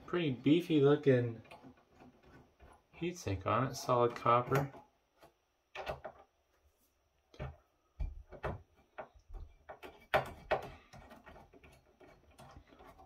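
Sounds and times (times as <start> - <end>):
clicks and knocks of handled parts: 1.3 - 3.0, 3.7 - 6.4, 7.3 - 13.0.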